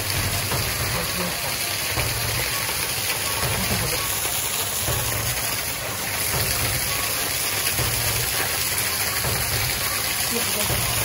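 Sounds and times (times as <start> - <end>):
stream running over rocks: 0.0 - 11.0
waterfall rushing: 0.0 - 11.0.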